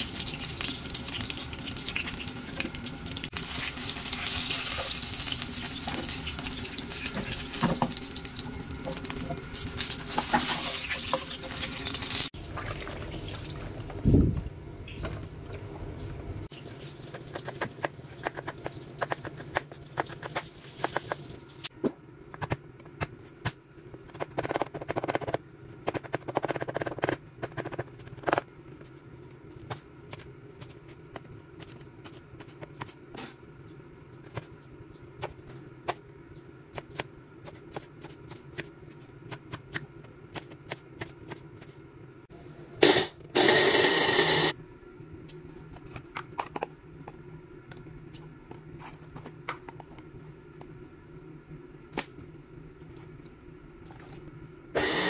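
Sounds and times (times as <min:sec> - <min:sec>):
eggplants sizzling in oil: 0:00.0 - 0:12.3.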